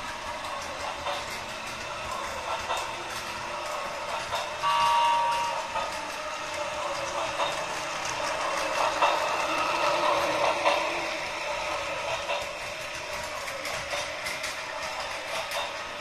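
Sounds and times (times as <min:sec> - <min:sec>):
toy train motor whirring: 0:00.0 - 0:16.0
wheels clattering over track joints: 0:00.0 - 0:16.0.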